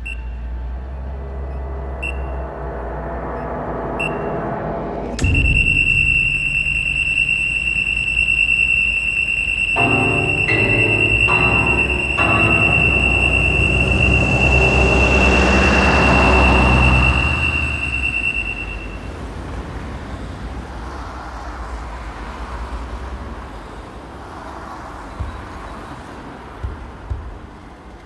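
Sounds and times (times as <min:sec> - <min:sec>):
low rumble and rushing noise: 0:00.0 - 0:08.8, 0:09.8 - 0:28.0
high ringing tone: 0:00.0 - 0:19.2.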